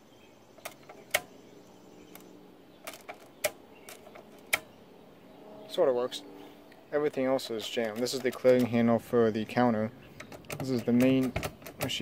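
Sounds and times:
sharp metal clicks of crank: 2.9 - 4.7, 7.1 - 9.0, 10.2 - 12.0.

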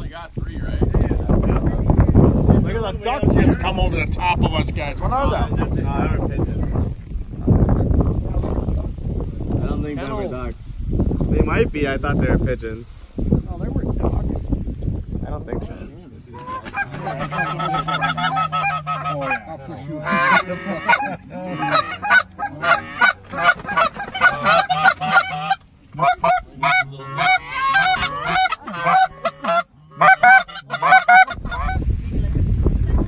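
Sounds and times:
geese honking: 16.3 - 31.8.

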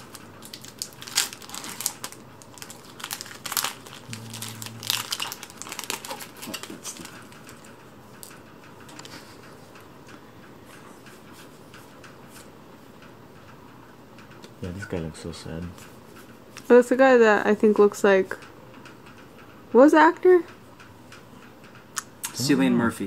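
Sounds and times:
cards and packaging crinkling: 0.0 - 7.7.

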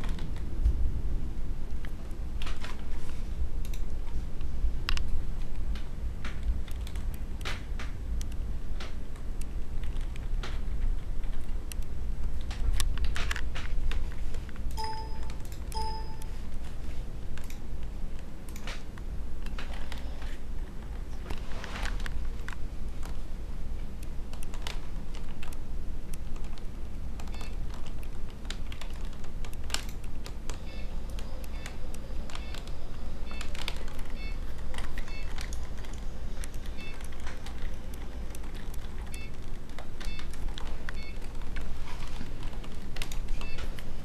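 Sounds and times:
keyboard keys clicking: 3.6 - 44.0
short electronic beeps: 14.8 - 16.3.

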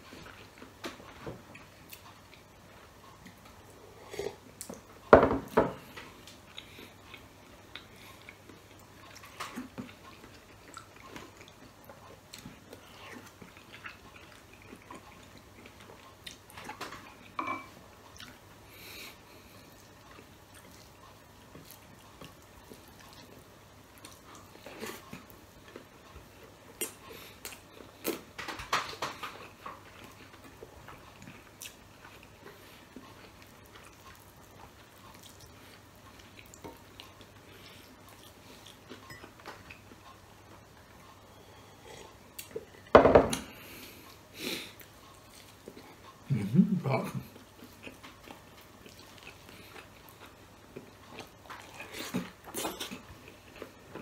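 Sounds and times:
chewing food: 0.0 - 5.1, 5.8 - 54.0
spoon and fork clinking on plate: 17.4 - 17.7.

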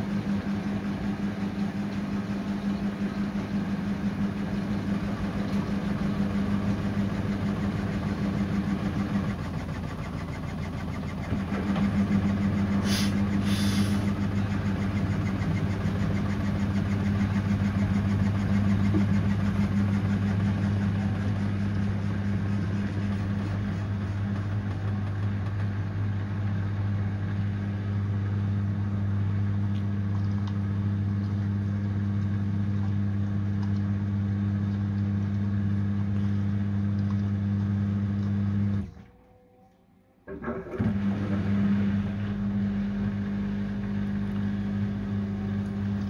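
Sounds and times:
drain pump emptying: 0.0 - 26.1, 40.3 - 46.0
water swishing in drum: 0.0 - 39.2
washing machine hum: 0.0 - 46.0.

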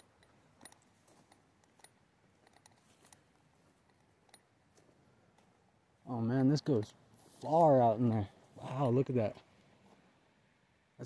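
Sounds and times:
faint irregular ticks and clicks: 0.0 - 8.7.

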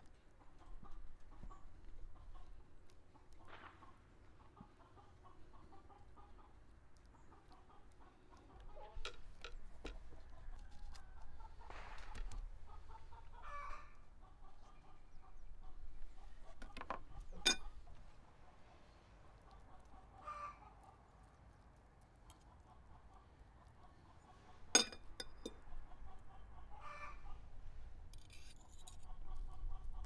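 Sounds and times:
hens clucking: 0.2 - 21.2, 22.2 - 27.6, 29.0 - 30.0
knife scraping on plate: 16.6 - 17.8, 24.7 - 25.6, 28.2 - 29.1.

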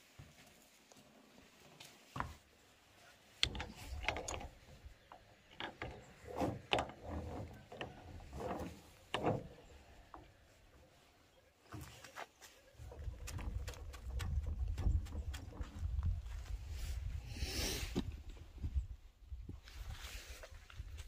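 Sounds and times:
metal clicks and grating creaks: 3.4 - 10.4.

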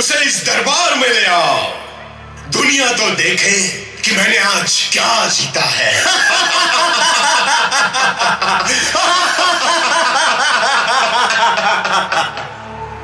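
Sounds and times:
man's mocking laugh over loudspeakers: 5.9 - 12.6.

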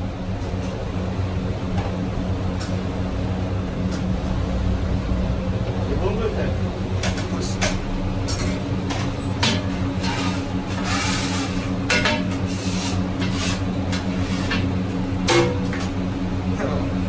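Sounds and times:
steady low hum: 0.0 - 17.0
metal spatula scraping griddle: 9.2 - 14.7.

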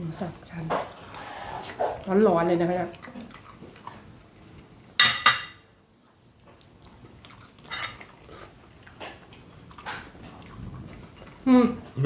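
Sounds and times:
soft eating noises: 0.1 - 12.0
cutlery clinking on ceramic plate: 5.0 - 5.6, 7.7 - 8.0.

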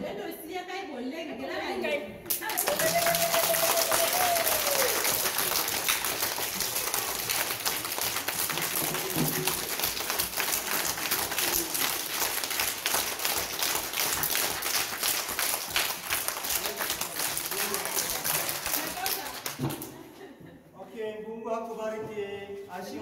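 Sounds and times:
children clapping: 2.3 - 20.0.

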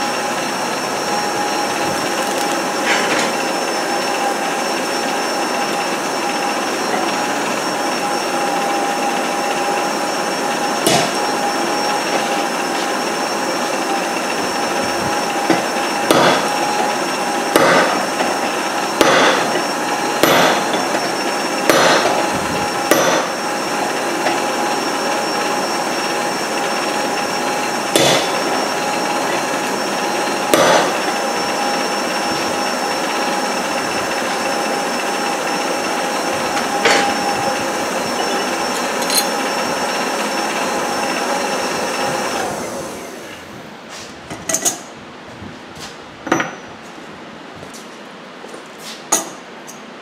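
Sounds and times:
steel bar clanking on anvil: 15.5 - 16.5, 17.6 - 18.1, 20.2 - 21.0, 21.7 - 22.3, 28.0 - 28.4, 30.5 - 31.1, 39.0 - 39.3
metal tools clinking on anvil: 38.8 - 39.4.

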